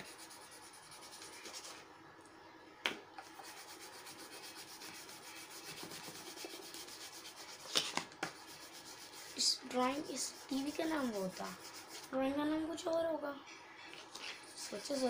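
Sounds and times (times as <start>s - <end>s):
pencil shading on paper: 0.0s - 1.8s, 3.4s - 7.6s, 8.4s - 12.2s, 14.4s - 15.0s.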